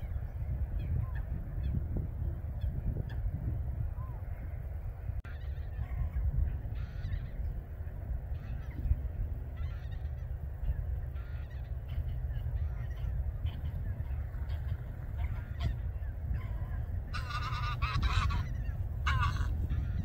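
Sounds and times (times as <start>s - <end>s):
low wind rumble: 0.0s - 20.0s
geese honking: 5.2s - 20.0s.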